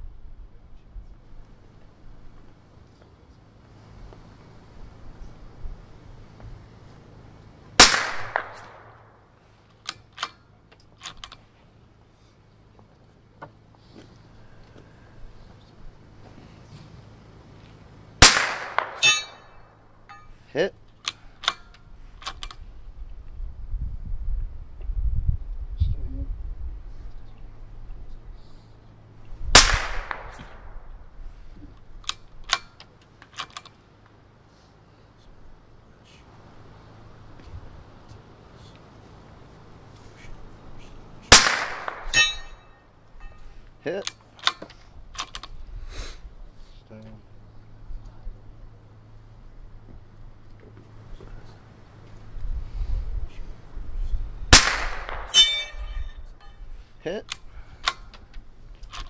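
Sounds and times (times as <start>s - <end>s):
rifle shot echoing: 7.8s - 9.3s, 18.2s - 19.7s, 29.5s - 31.1s, 41.3s - 42.6s, 54.5s - 55.9s
rifle bolt metallic clicks: 9.8s - 11.4s, 21.0s - 22.6s, 31.8s - 33.8s, 44.0s - 45.6s, 57.2s - 58.2s, 58.8s - 59.0s
short crack: 54.5s - 56.0s.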